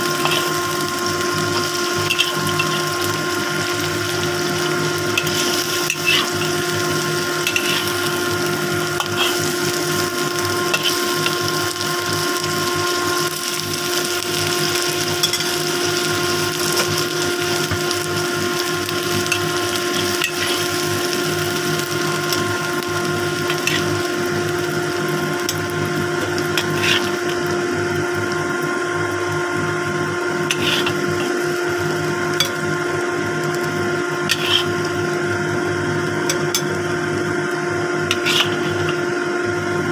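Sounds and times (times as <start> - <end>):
fish frying in oil: 0.0 - 39.9
motor hum: 0.0 - 39.9
metal spatula scraping pan: 0.2 - 0.6, 1.6 - 2.9, 5.1 - 6.7, 7.4 - 8.2, 9.0 - 10.0, 10.7 - 11.2, 19.3 - 20.8, 23.5 - 24.0, 26.6 - 27.4, 30.5 - 31.4, 34.3 - 34.9, 38.1 - 39.0.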